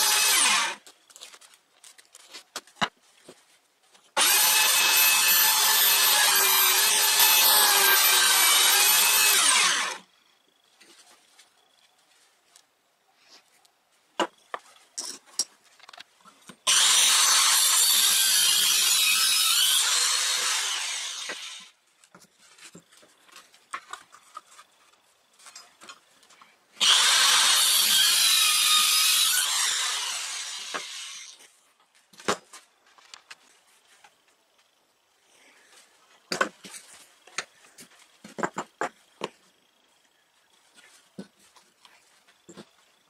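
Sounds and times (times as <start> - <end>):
circular saw cutting wood: 0.0 - 0.8, 4.2 - 10.1, 16.6 - 21.8, 26.8 - 31.5
wood being handled: 0.8 - 4.2, 21.4 - 26.6, 35.7 - 39.6.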